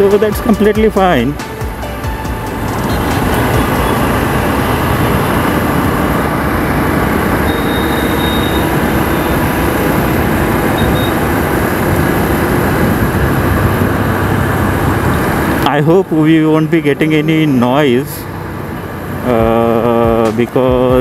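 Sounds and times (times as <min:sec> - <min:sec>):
motorcycle road noise: 0:00.0 - 0:21.0
wind rush: 0:02.3 - 0:15.6.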